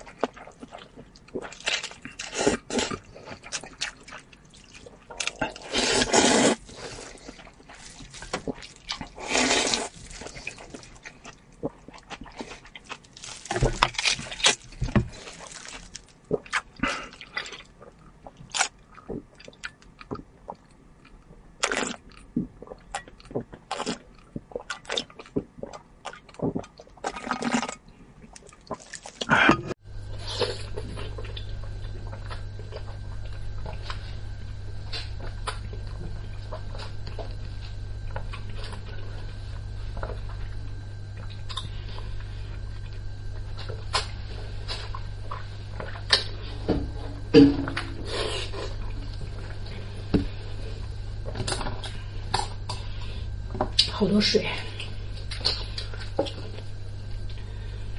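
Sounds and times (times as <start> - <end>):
steady low hum: 0.0 - 57.9
slurping noodles: 4.6 - 7.7, 8.6 - 10.9.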